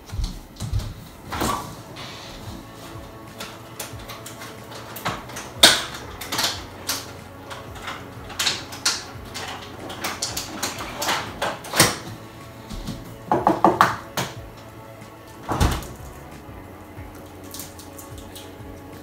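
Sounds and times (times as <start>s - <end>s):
fridge door shutting: 0.6s - 14.6s, 15.4s - 16.2s
containers clicking and knocking: 3.3s - 12.2s.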